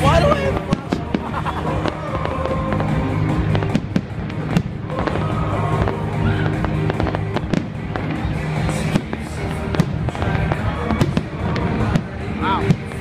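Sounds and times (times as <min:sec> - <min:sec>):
fireworks bursting with sharp bangs: 0:00.0 - 0:13.0
music playing: 0:00.0 - 0:13.0.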